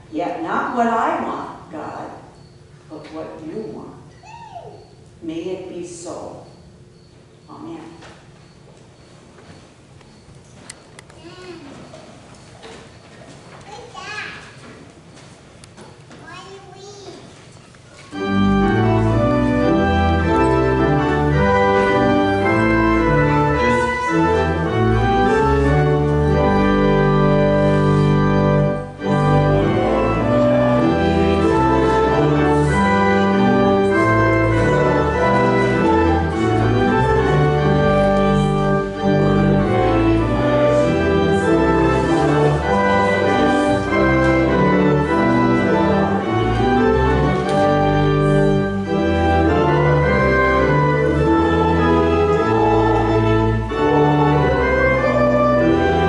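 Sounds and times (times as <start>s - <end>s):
church organ playing chords: 18.1s - 56.0s.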